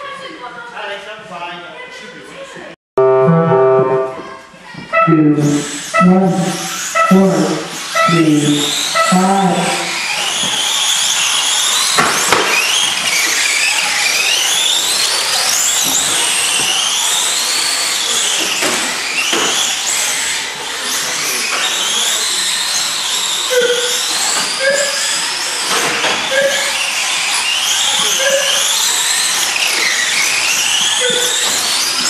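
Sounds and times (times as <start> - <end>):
short beeps: 3.0 - 4.3, 5.0 - 9.2.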